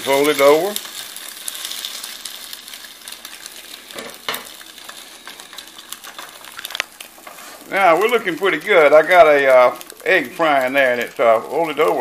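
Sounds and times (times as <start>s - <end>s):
eggs sizzling in a pan: 0.0s - 12.0s
spatula scraping a pan: 0.9s - 7.8s.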